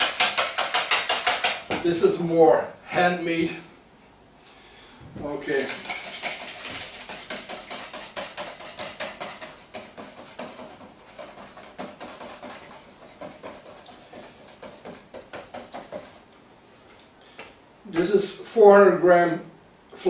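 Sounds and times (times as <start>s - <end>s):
whisk beating batter in bowl: 0.0s - 1.8s, 5.4s - 16.3s.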